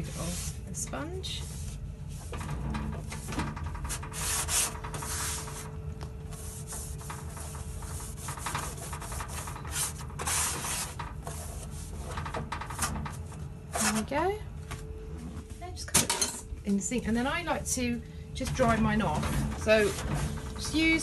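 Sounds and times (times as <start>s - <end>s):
sponge scrubbing microwave door: 0.0s - 14.1s, 18.5s - 21.0s.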